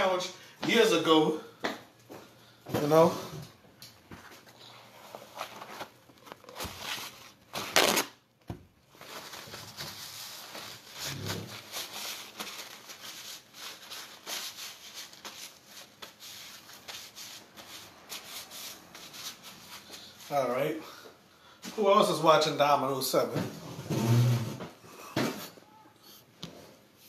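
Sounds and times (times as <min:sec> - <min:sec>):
paper rustling between hands: 0:04.1 - 0:08.1, 0:08.8 - 0:20.7
paper towel ripping: 0:04.9 - 0:20.3.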